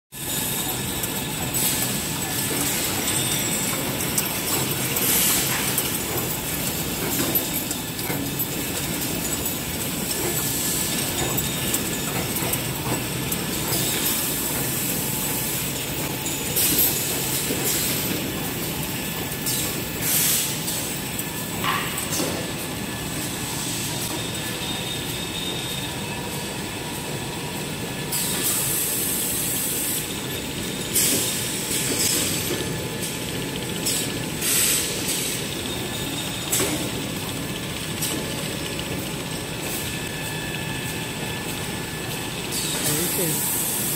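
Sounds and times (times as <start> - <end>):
wrapping machine rattling: 0.3 - 21.0.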